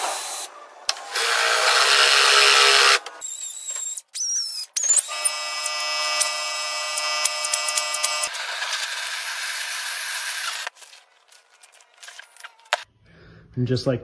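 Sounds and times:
cordless drill boring: 1.1 - 10.7.

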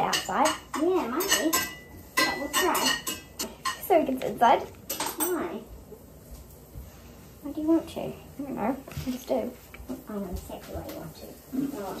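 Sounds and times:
utensils and dishes clinking: 0.0 - 5.6.

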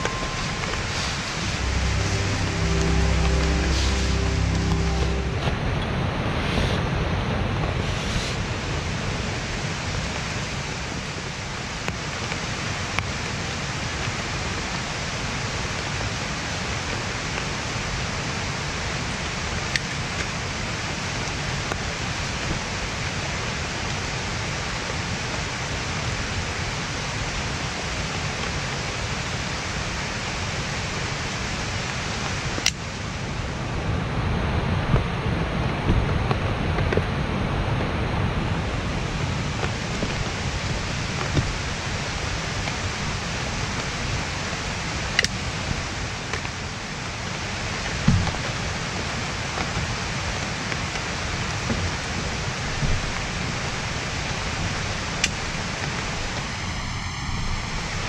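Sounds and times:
low rumble: 0.0 - 7.9
stream water rushing: 0.0 - 58.0.

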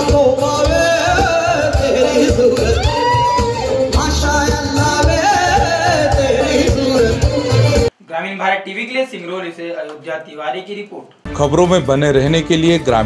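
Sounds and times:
band with heavy drum beat: 0.0 - 7.9
man singing: 0.0 - 7.9.

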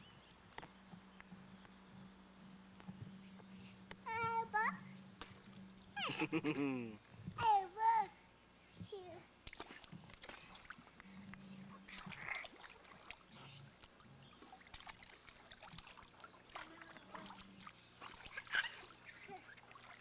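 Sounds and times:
water splashing in kiddie pool: 5.2 - 6.2, 9.4 - 20.0.

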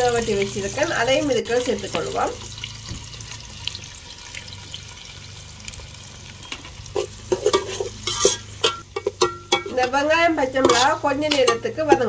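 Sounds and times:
onions sizzling in hot oil: 0.0 - 12.0
utensil clinking against pan: 6.4 - 10.0, 10.6 - 12.0.

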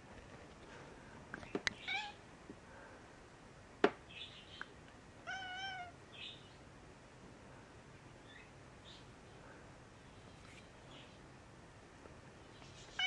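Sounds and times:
cat meowing: 1.8 - 2.2, 5.2 - 6.0.

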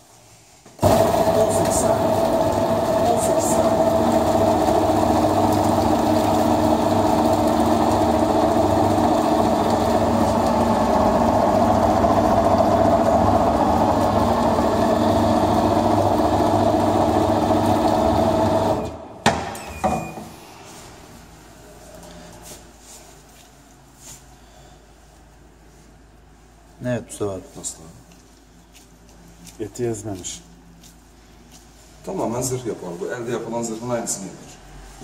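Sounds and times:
meat chopper motor humming: 0.8 - 19.1.

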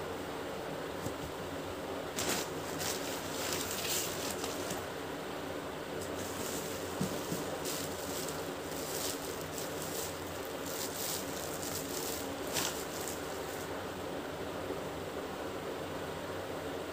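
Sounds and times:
steady hum: 0.0 - 16.9
plastic bag crinkling: 2.1 - 4.8, 6.0 - 13.7.

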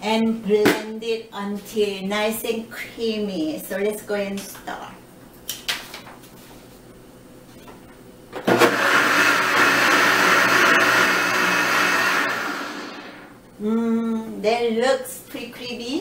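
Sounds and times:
blender running: 8.4 - 13.3.

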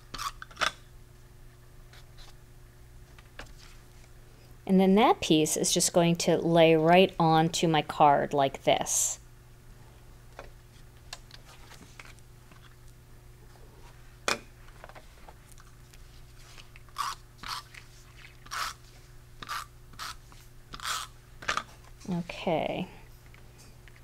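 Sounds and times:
tape runner crackly strokes: 15.1 - 21.2.

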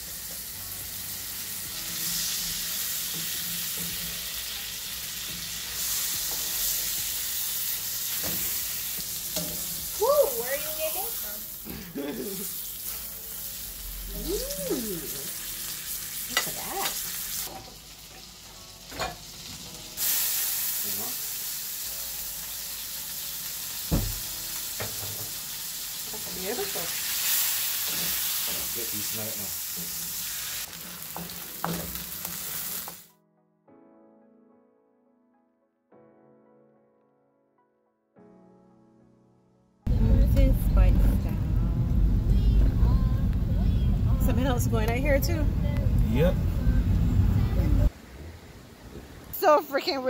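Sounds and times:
meat sizzling in a frying pan: 0.0 - 33.1
soft piano music: 0.0 - 49.8.

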